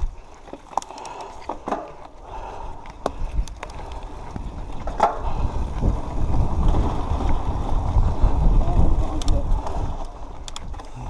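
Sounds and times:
bike tyres on dirt trail: 0:00.0 - 0:11.0
wind rumble on microphone: 0:02.6 - 0:11.0.

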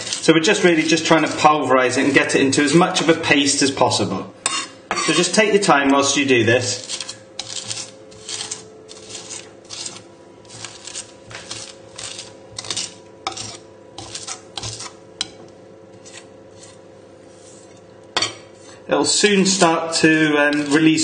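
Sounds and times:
knife crushing garlic and salt: 0:06.8 - 0:15.0.

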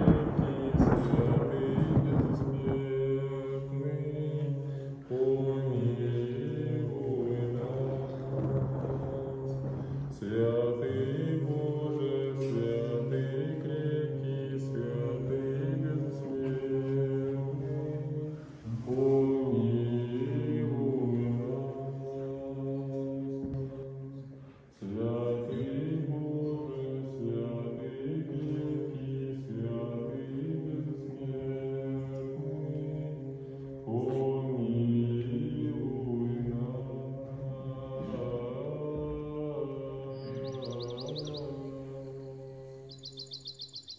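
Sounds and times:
low drone: 0:00.0 - 0:22.7
voices chanting long notes: 0:00.0 - 0:43.9.

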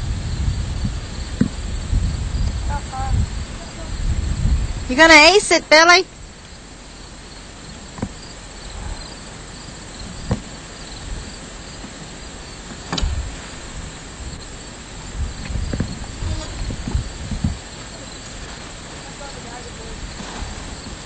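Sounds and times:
crickets chirping: 0:00.0 - 0:21.0
sharp knocks: 0:12.9 - 0:13.3.

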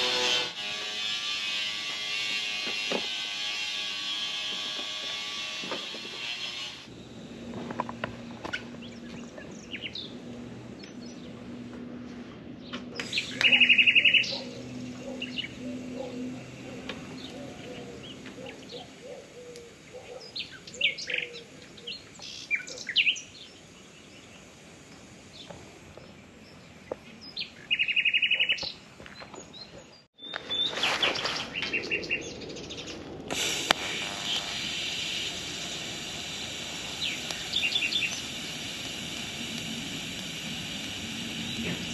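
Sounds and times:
welding arc hissing: 0:00.0 - 0:11.8, 0:12.8 - 0:29.1, 0:33.3 - 0:41.9
small birds chirping: 0:08.5 - 0:11.4, 0:12.6 - 0:24.6, 0:25.2 - 0:33.0, 0:36.8 - 0:38.9
loud fast bird trills: 0:13.0 - 0:19.5.

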